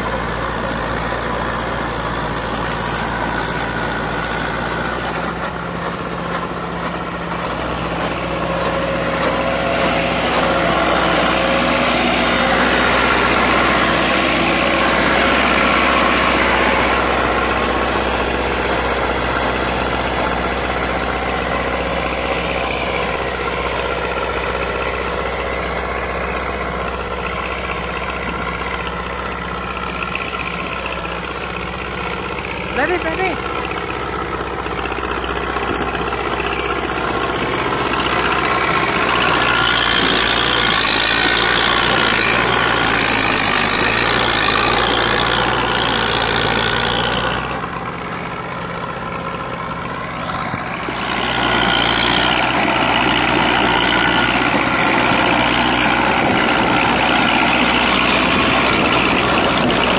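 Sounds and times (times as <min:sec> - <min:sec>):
rotavator churning dry soil: 0:00.0 - 0:59.9
tractor diesel engine running: 0:00.0 - 0:59.9.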